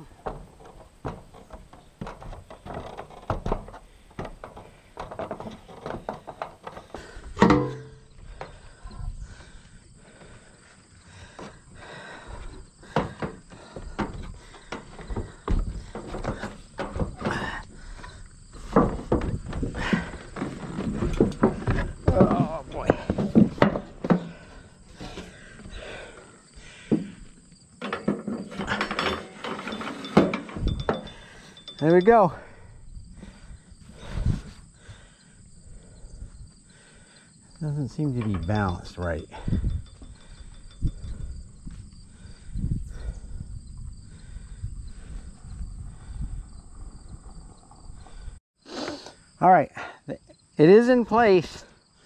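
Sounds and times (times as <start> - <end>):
metal weathervane knocking and clattering: 0.2 - 8.6, 27.8 - 32.6, 37.7 - 41.8
ladder knocks on metal roof: 7.4 - 8.1.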